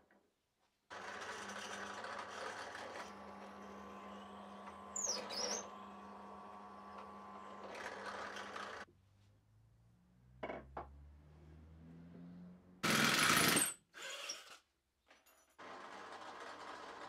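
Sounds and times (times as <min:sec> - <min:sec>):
drill press boring wood: 0:00.9 - 0:08.9, 0:15.6 - 0:17.0
drill press motor running: 0:00.9 - 0:08.9.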